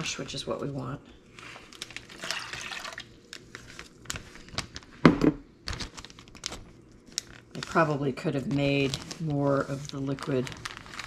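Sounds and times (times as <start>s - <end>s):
brine sloshing in a jar: 1.8s - 3.2s.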